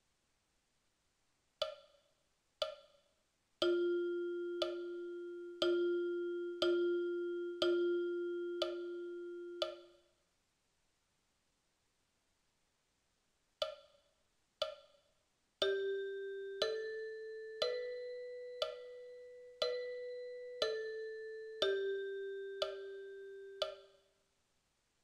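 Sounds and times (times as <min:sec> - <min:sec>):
metronome ticking: 0:01.6 - 0:02.0, 0:02.6 - 0:03.0, 0:03.6 - 0:10.0, 0:13.6 - 0:14.0, 0:14.6 - 0:15.0, 0:15.6 - 0:24.1.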